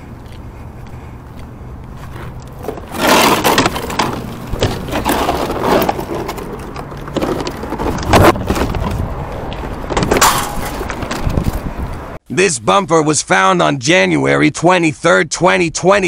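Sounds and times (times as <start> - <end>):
plastic bumper scraping and rattling: 2.2 - 9.2.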